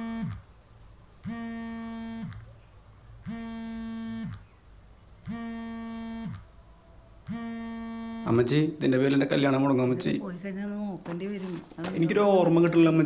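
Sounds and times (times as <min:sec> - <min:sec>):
phone vibrating: 0:00.0 - 0:00.5, 0:01.2 - 0:02.4, 0:03.2 - 0:04.5, 0:05.2 - 0:06.5, 0:07.2 - 0:08.5.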